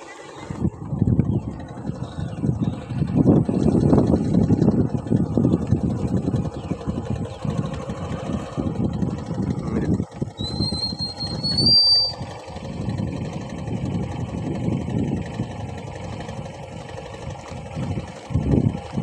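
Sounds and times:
steady low rumble: 0:00.0 - 0:19.0
high whistle rising in pitch: 0:10.4 - 0:12.3.

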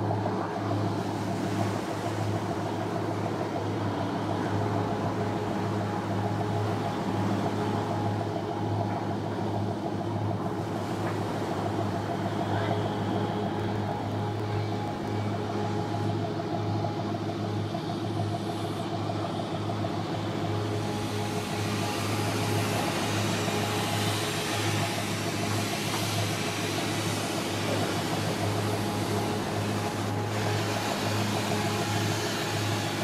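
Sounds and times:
boat engine idling drone: 0:00.0 - 0:33.0.

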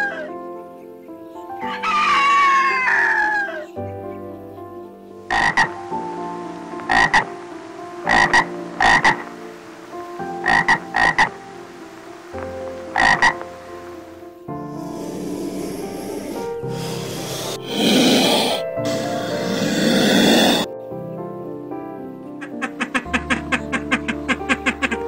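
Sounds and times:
steady background tones: 0:04.0 - 0:22.7.

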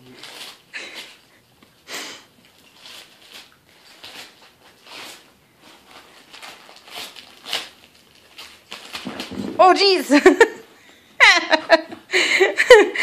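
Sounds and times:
wrapping paper tearing and crinkling: 0:00.0 - 0:01.3, 0:02.4 - 0:10.0.

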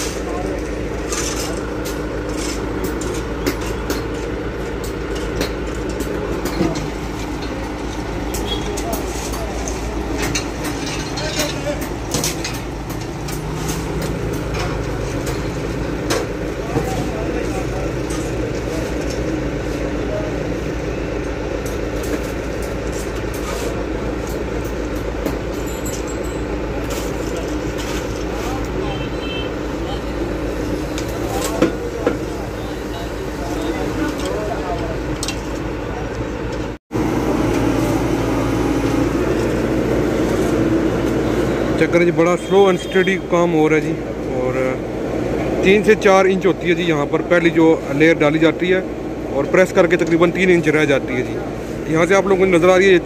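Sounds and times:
sharp clicks and knocks: 0:00.0 - 0:17.0
asphalt paver humming: 0:00.0 - 0:42.2.

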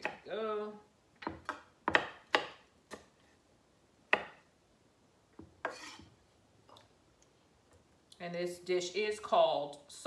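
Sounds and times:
knife chopping on wooden board: 0:01.2 - 0:03.1, 0:04.1 - 0:04.4.

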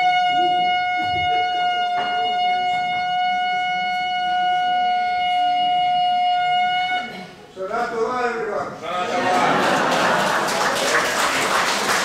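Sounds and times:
shofar long blast: 0:00.0 - 0:07.2.

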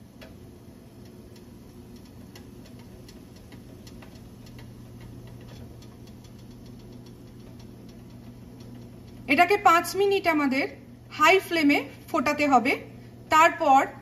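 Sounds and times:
syrup boiling with pops: 0:00.0 - 0:10.0
steady low hum: 0:00.0 - 0:14.0.

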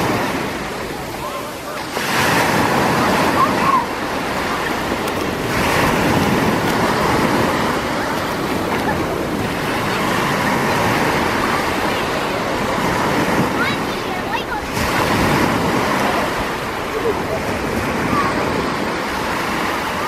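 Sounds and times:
small waves breaking on beach: 0:00.0 - 0:20.0.

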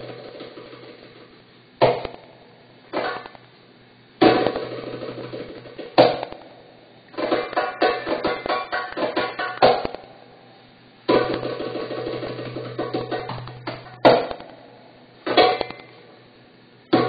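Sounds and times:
hand drum strikes: 0:11.1 - 0:14.3.

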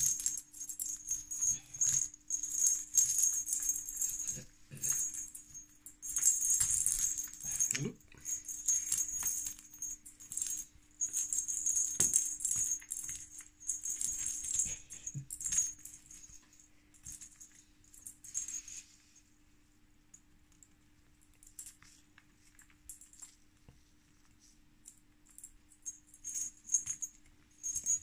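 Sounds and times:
toy ball bell jingling: 0:00.0 - 0:18.8, 0:25.8 - 0:28.0.

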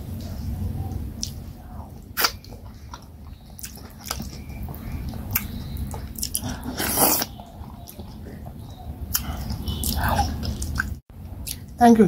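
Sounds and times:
wet chewing and lip smacks: 0:01.2 - 0:01.4, 0:02.0 - 0:11.7.

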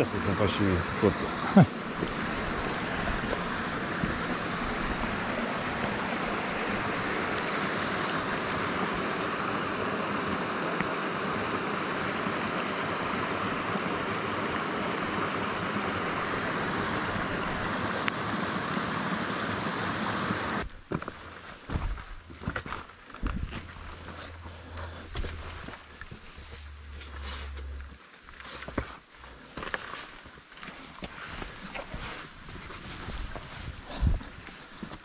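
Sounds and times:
stream rushing: 0:00.0 - 0:20.7.

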